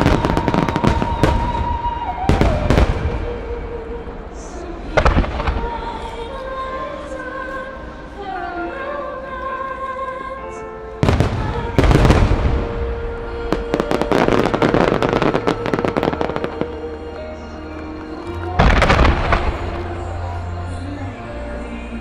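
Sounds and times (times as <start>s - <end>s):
firework booms: 0.0s - 3.6s, 11.0s - 16.5s, 18.6s - 19.8s
firework crackling: 0.0s - 6.4s, 11.0s - 20.5s
music: 0.0s - 22.0s.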